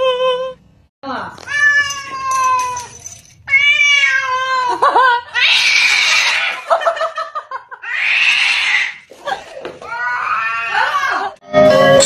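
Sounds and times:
cat meowing and yowling: 1.5 - 4.7.

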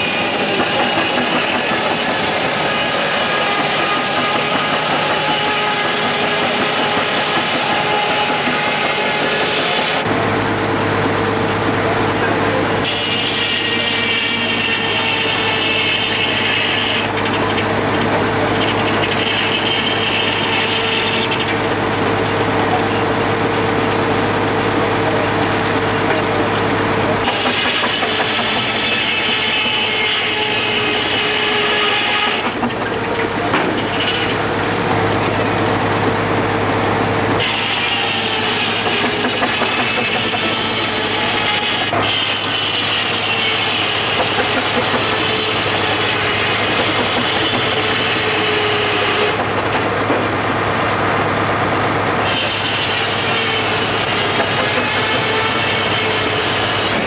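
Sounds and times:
steam engine running with hiss: 0.0 - 57.0
circular saw ripping log: 12.8 - 21.6, 37.4 - 49.6.

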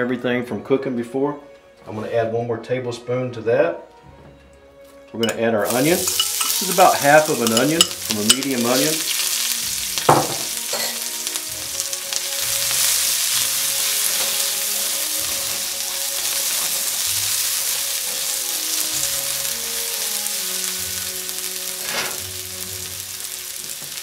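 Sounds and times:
spatula stirring in wok: 5.2 - 9.6
onion sizzling in hot oil: 5.2 - 24.0.

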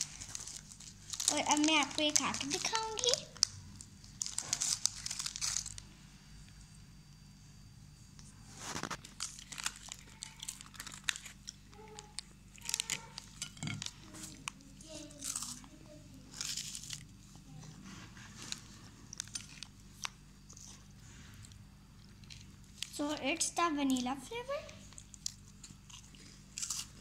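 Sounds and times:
wafers crunching: 0.0 - 3.5, 8.5 - 17.2, 23.9 - 27.0
foil wrapper crinkling: 0.0 - 5.9, 8.5 - 17.3, 18.3 - 20.9, 22.1 - 27.0.

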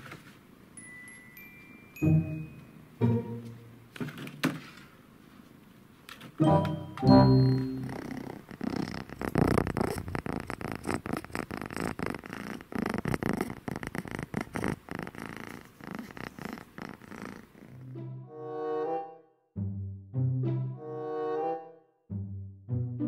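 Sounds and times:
music: 0.8 - 4.0, 6.4 - 8.2, 17.8 - 23.0
cat purring: 7.5 - 17.9.

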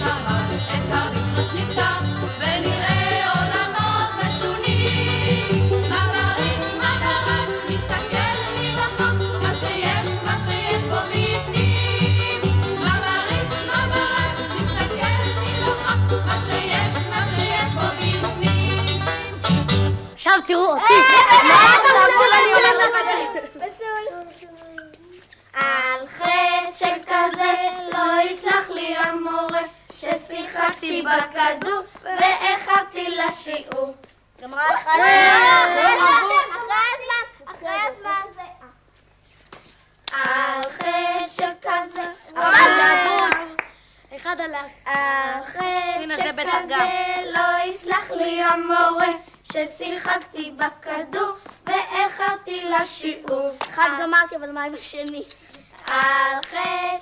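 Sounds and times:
children singing: 0.0 - 19.2, 40.2 - 43.4, 45.4 - 53.5, 55.9 - 57.0
child singing: 24.1 - 36.7, 40.1 - 43.6, 44.2 - 57.0.

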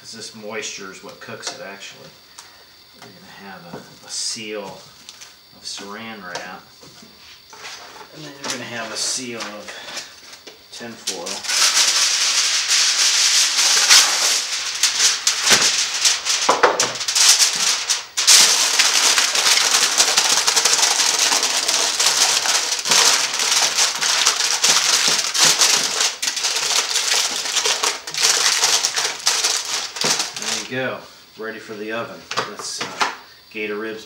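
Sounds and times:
aluminium foil crinkling: 7.5 - 30.8.

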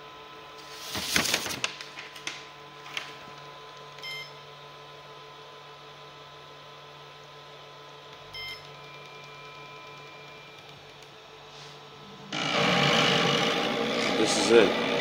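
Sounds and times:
paper rustling: 0.6 - 3.1.

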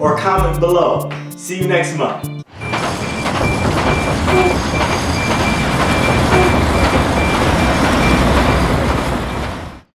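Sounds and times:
heavy rumble: 2.5 - 9.8.

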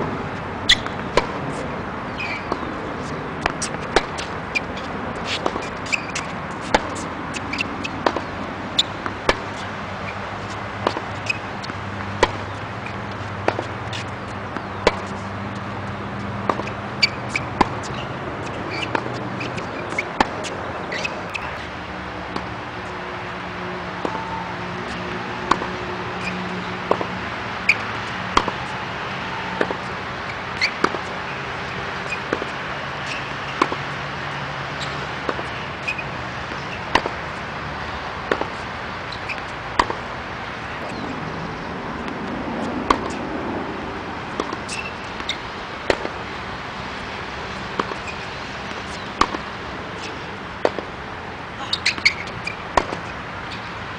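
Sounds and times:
tennis balls struck by racket: 0.4 - 43.4, 44.2 - 53.9
balls bouncing on hard court: 0.7 - 34.1, 34.7 - 37.2, 39.2 - 41.2, 42.0 - 43.3, 44.3 - 46.2, 47.5 - 50.9, 51.6 - 53.7.

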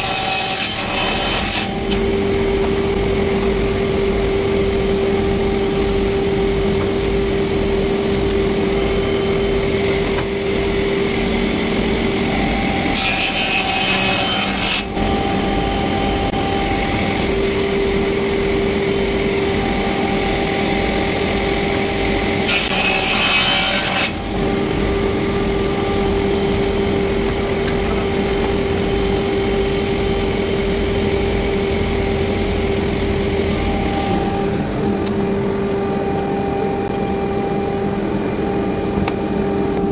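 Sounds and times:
saw cutting wooden board: 0.0 - 3.7, 8.0 - 30.2
panel saw motor hum: 1.0 - 39.9.

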